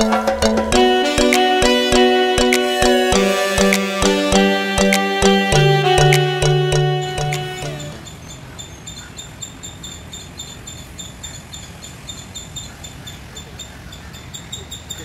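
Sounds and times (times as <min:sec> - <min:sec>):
background music: 0:00.0 - 0:08.0.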